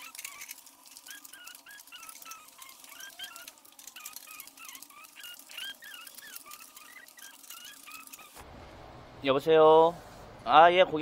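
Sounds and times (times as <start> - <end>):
paper flyers rustling: 0.0 - 8.4.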